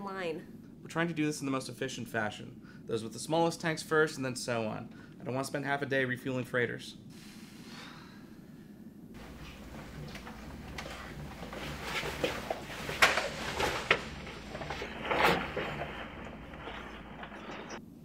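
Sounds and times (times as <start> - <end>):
low steady hum: 7.0 - 18.0.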